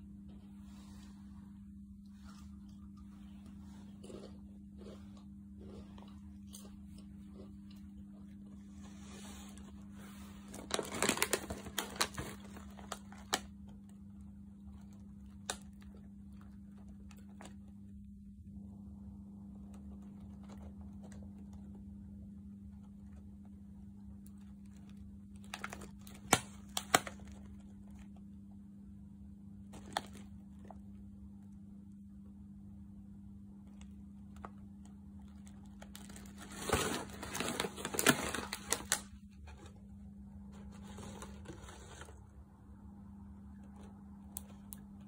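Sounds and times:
steady low hum: 0:00.0 - 0:45.0
chip bag crinkling: 0:05.6 - 0:18.1, 0:19.7 - 0:21.7, 0:24.2 - 0:28.2, 0:29.6 - 0:31.0, 0:33.7 - 0:39.7.

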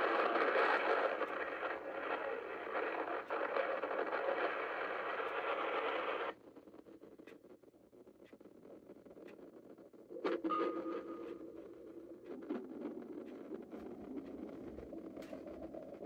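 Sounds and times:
radio static hiss: 0:00.0 - 0:06.4.

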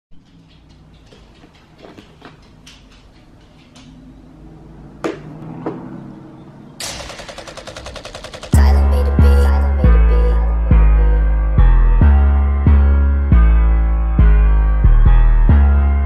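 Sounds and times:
sharp clicks: 0:00.1 - 0:04.1, 0:06.8 - 0:08.8.

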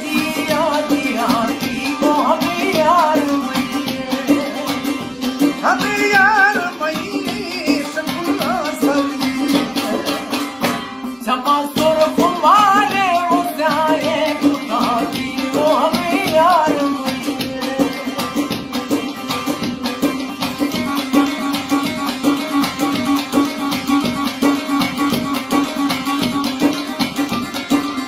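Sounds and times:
man singing: 0:00.0 - 0:10.4, 0:11.2 - 0:18.6
lute strummed fast: 0:00.0 - 0:28.0.

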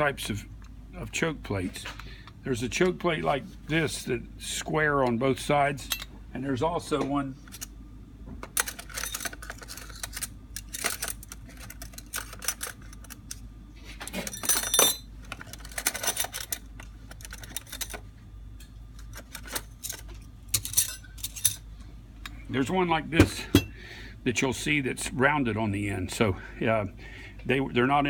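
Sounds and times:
small metal parts clinking: 0:08.6 - 0:13.4, 0:14.1 - 0:18.0, 0:19.0 - 0:21.7
metallic ring: 0:14.3 - 0:15.1.

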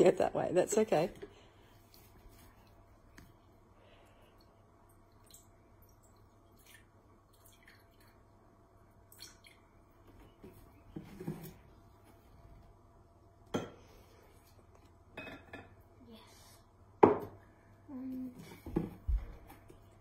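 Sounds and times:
water trickling and dripping: 0:04.3 - 0:08.4, 0:09.0 - 0:10.0.

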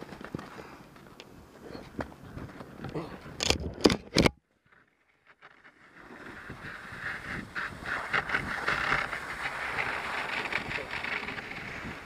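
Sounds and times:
skis hissing over snow: 0:05.8 - 0:12.0
wind rush: 0:06.2 - 0:12.0.

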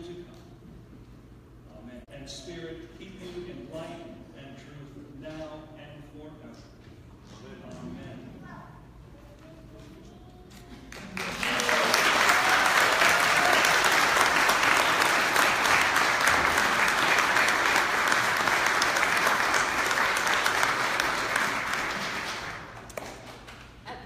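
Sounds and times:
crowd applauding: 0:10.9 - 0:23.8.

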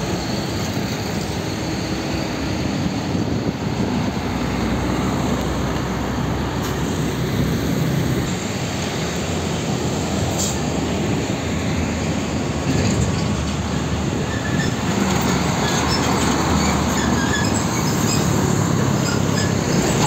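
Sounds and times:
rumble of tyres and trailer: 0:00.0 - 0:20.0
short high squeaks: 0:14.2 - 0:20.0.

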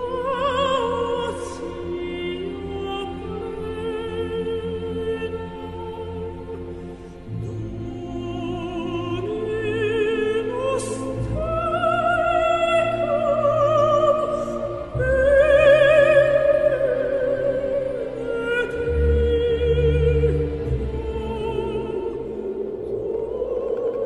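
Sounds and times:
orchestral accompaniment: 0:00.0 - 0:23.9
operatic voice singing: 0:07.3 - 0:24.0.

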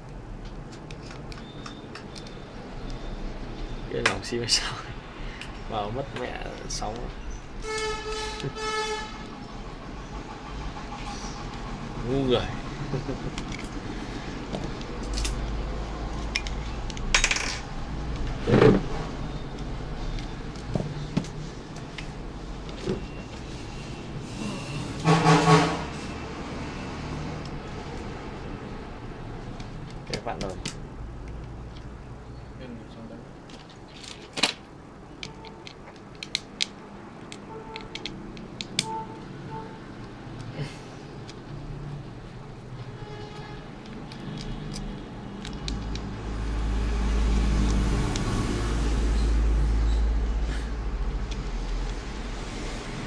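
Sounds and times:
plastic phone parts clicking: 0:00.4 - 0:03.0, 0:14.5 - 0:17.4, 0:29.5 - 0:31.9, 0:33.5 - 0:38.9, 0:43.8 - 0:46.1.

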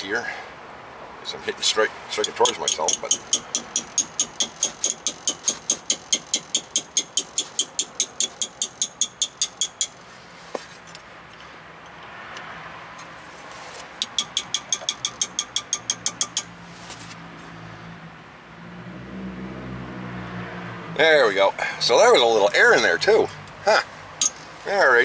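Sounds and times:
rapid metal-on-metal tapping: 0:02.1 - 0:10.0, 0:14.0 - 0:16.5.

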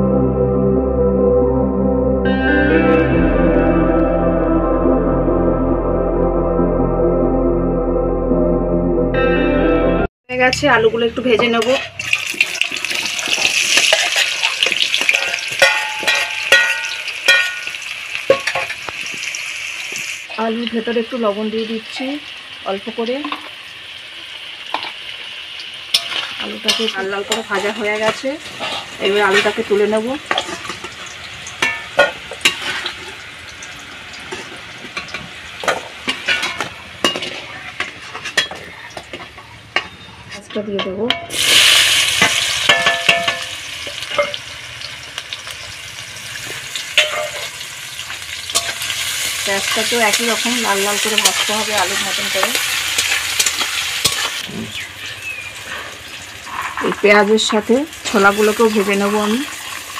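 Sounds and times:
potatoes sizzling in hot oil: 0:10.6 - 0:39.7, 0:41.3 - 0:59.9
metal spatula scraping pan: 0:11.3 - 0:12.6, 0:13.3 - 0:18.8, 0:26.0 - 0:31.0, 0:31.6 - 0:33.1, 0:34.3 - 0:41.5
ringing metal clanks: 0:15.2 - 0:17.7.

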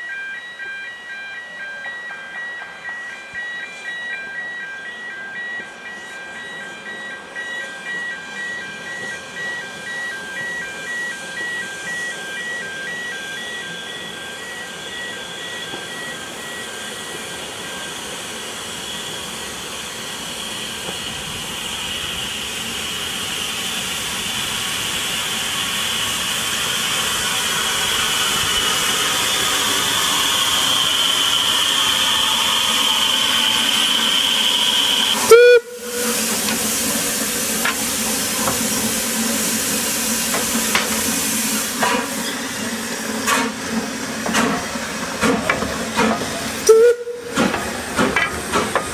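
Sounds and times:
steam locomotive hissing: 0:07.7 - 0:48.9
loud swooping whistle burst: 0:29.3 - 0:36.3, 0:46.7 - 0:47.2.

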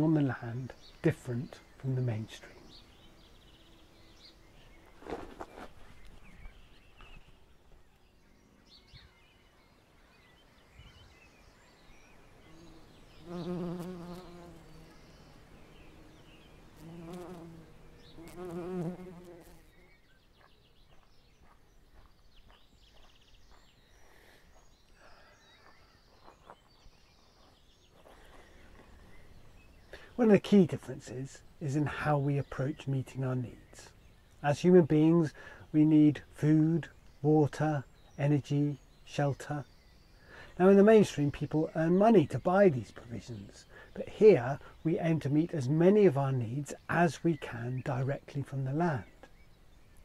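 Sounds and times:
bumblebee buzzing in flight: 0:12.4 - 0:20.0.

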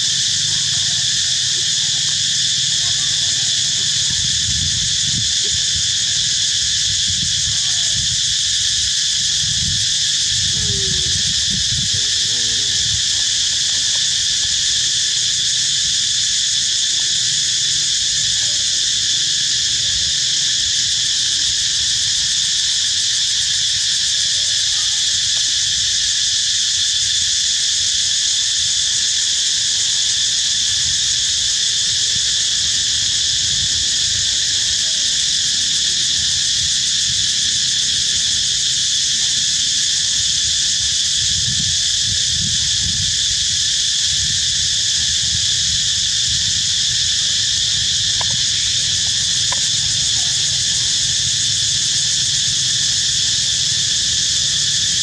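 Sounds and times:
insects buzzing: 0:00.0 - 0:55.0.

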